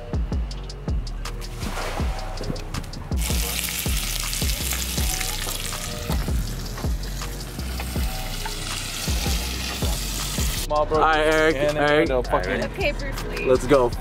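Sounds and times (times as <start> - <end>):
background music with steady beat: 0.0 - 14.0
bacon sizzling: 3.2 - 10.7.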